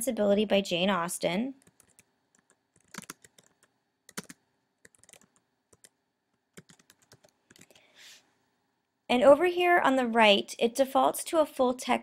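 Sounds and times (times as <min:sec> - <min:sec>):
typing on a computer keyboard: 0:01.6 - 0:07.8.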